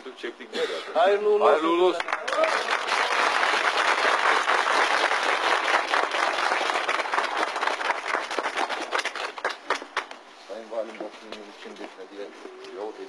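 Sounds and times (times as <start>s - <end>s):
crowd applauding: 2.0s - 10.2s.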